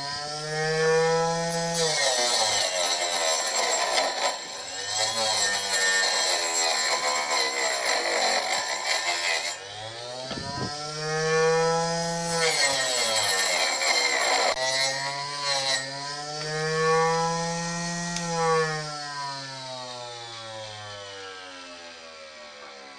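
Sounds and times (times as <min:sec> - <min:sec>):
circular saw cutting wood: 0:00.0 - 0:22.9
motor whine: 0:09.6 - 0:12.2.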